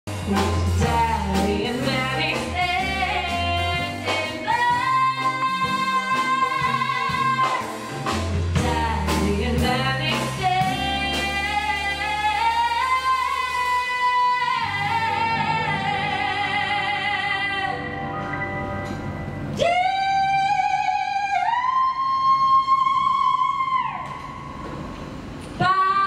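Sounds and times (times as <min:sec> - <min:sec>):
woman singing: 0:00.1 - 0:17.9, 0:19.6 - 0:24.0, 0:25.6 - 0:26.0
band accompaniment: 0:00.1 - 0:20.0.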